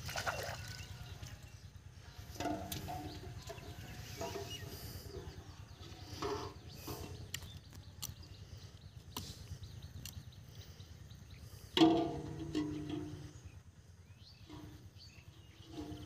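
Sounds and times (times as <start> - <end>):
water sloshing: 0.0 - 7.5
distant calls: 0.0 - 16.0
low steady rumble: 0.0 - 16.0.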